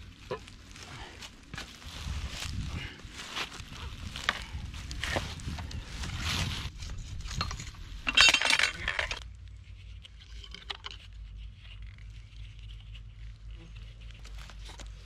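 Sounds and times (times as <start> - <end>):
pipe wrench clinking on metal fittings: 7.4 - 9.2.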